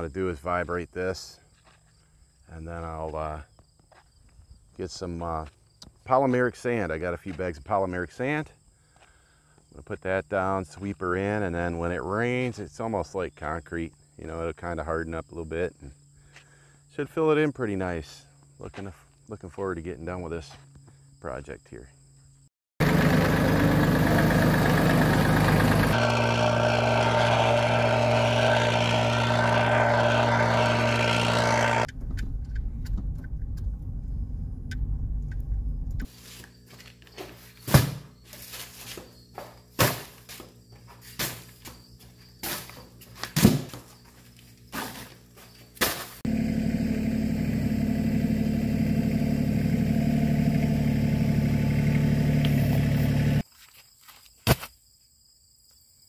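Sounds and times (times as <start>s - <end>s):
tractor engine running: 22.8s - 33.9s, 46.3s - 53.4s.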